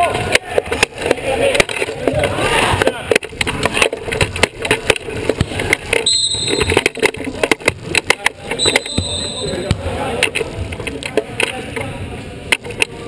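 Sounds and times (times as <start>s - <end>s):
wheelchair rattling and clicking: 0.0s - 9.1s
high squeaks: 6.0s - 7.0s, 8.6s - 9.7s.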